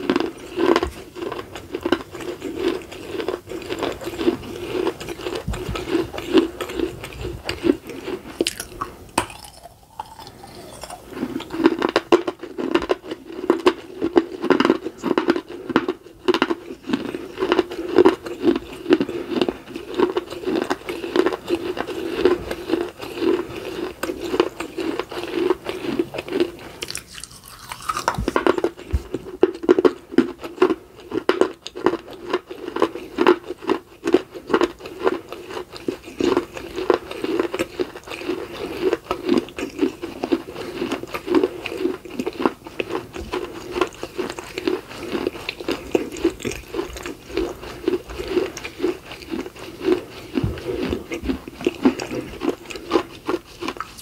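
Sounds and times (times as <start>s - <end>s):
crunching and chewing clay: 0.0s - 54.0s.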